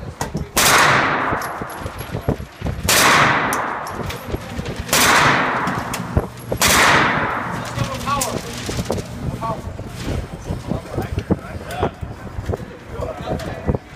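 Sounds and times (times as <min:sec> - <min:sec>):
gunfire echo off walls: 0:00.6 - 0:08.0.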